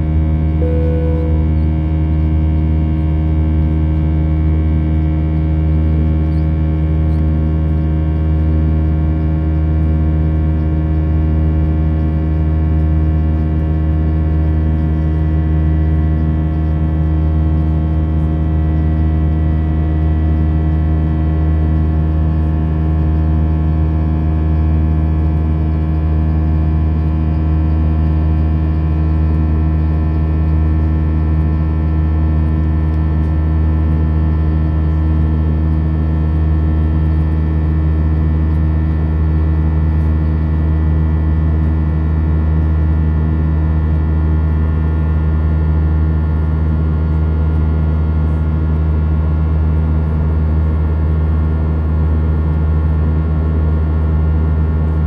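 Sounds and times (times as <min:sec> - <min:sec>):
airliner engine hum: 0:00.0 - 0:55.0.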